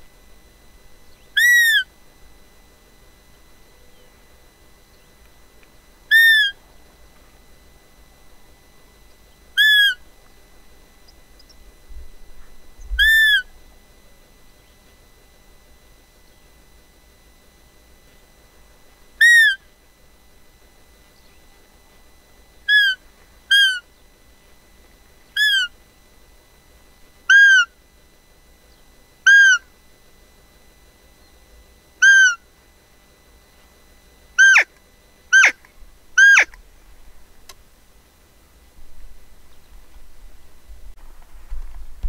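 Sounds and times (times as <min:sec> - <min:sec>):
deer call peeps: 0:01.4 - 0:01.9, 0:06.1 - 0:06.6, 0:09.6 - 0:10.1, 0:13.0 - 0:13.5, 0:19.2 - 0:19.7, 0:22.7 - 0:23.9, 0:25.3 - 0:25.8, 0:27.3 - 0:27.8, 0:29.2 - 0:29.7, 0:32.0 - 0:32.5, 0:34.4 - 0:36.6.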